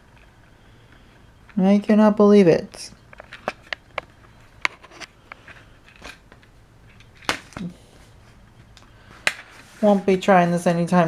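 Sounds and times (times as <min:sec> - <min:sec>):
handling clicks and crinkles: 0:03.0 - 0:07.6.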